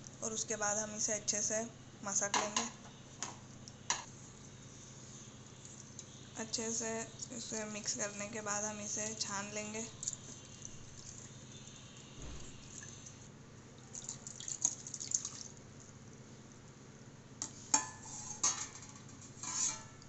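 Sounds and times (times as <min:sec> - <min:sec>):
water splashing and dripping: 0:09.9 - 0:11.4, 0:13.8 - 0:15.6.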